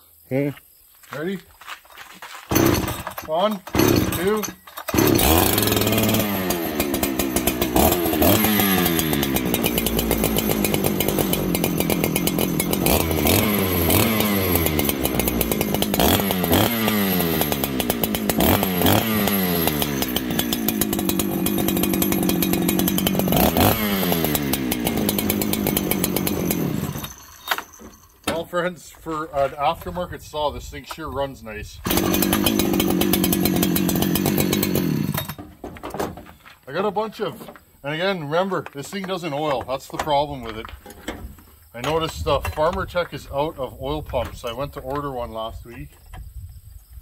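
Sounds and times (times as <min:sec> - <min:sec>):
chainsaw revving and idling: 0:02.5 - 0:27.9, 0:31.8 - 0:35.4.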